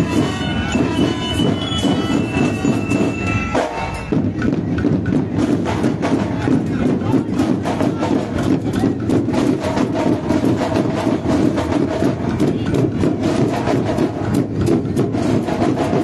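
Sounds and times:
held melody line: 0:00.0 - 0:04.3
marching band drums: 0:00.0 - 0:16.0.

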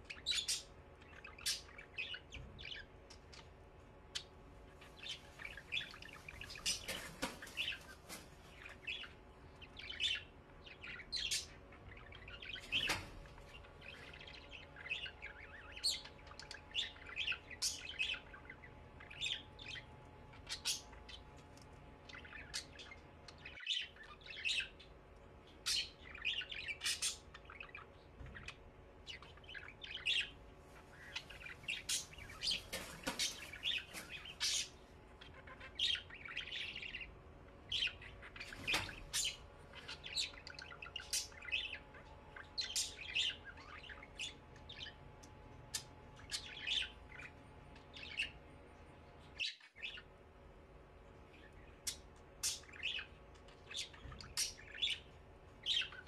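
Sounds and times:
caged birds chirping and squawking: 0:00.0 - 0:56.0
steady low hum: 0:00.0 - 0:56.0.

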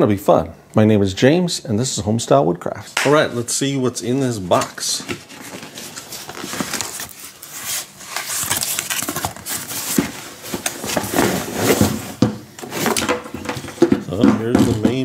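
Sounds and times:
cardboard rustling and scraping: 0:04.2 - 0:15.0.

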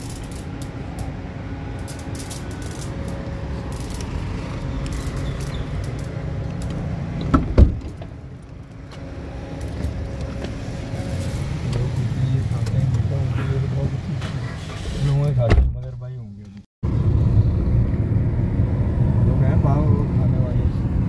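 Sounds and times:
traffic rumble: 0:00.0 - 0:21.0
car door shutting: 0:07.2 - 0:08.2, 0:14.2 - 0:15.9.

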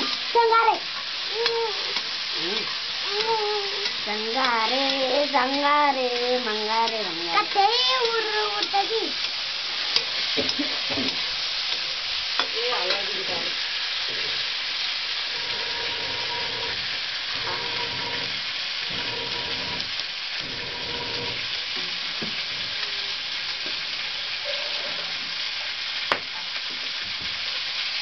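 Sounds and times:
food sizzling in a wok: 0:00.0 - 0:28.0
metal spatula stirring: 0:01.4 - 0:13.1, 0:15.3 - 0:21.4.

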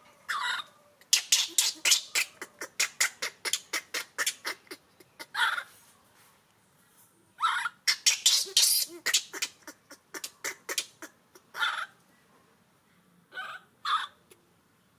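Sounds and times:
baby monkey crying: 0:00.3 - 0:05.7, 0:07.4 - 0:12.0, 0:13.3 - 0:14.2.

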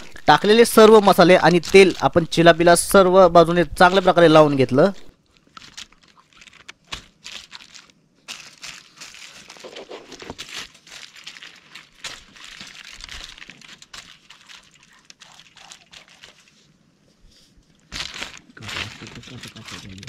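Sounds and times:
aluminium foil crinkling: 0:00.0 - 0:03.0, 0:04.8 - 0:16.7, 0:17.7 - 0:20.0.

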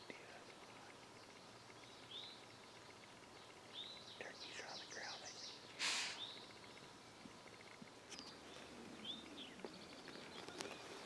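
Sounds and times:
songbirds chirping: 0:00.0 - 0:11.0
loud breathy noise burst: 0:05.8 - 0:06.2.

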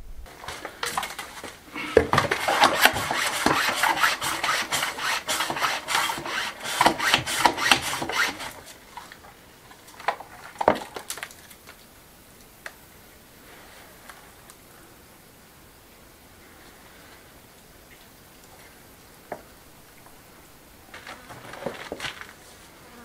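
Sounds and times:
scraping against rough stonework: 0:00.3 - 0:11.1.

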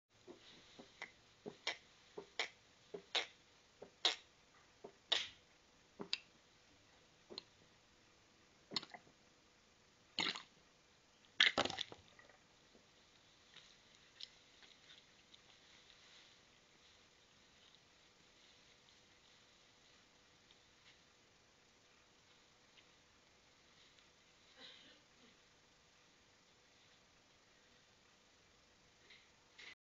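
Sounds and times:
cat retching: 0:01.5 - 0:04.3, 0:05.1 - 0:05.4, 0:10.2 - 0:10.5.

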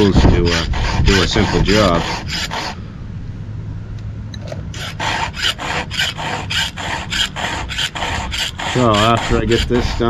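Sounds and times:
file rasping on chainsaw chain: 0:00.0 - 0:02.8, 0:04.7 - 0:10.0.

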